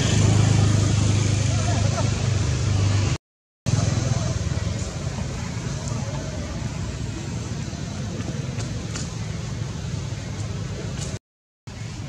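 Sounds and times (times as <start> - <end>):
low rumble and hiss: 3.7 - 11.1.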